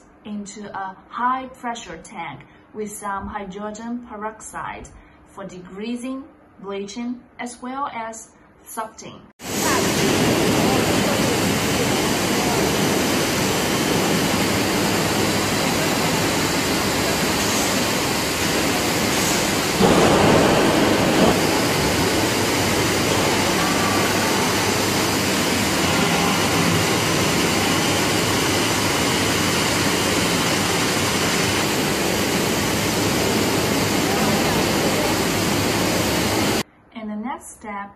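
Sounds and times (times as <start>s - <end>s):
factory machinery rushing din: 9.4s - 36.6s
low machine rush: 9.4s - 36.6s.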